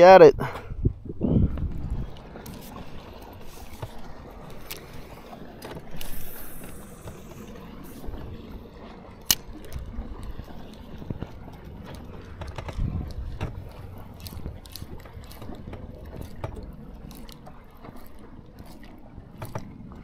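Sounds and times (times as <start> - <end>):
water and boat noise: 0.0 - 20.0
clicks and knocks of gear: 3.6 - 5.0, 9.2 - 19.9.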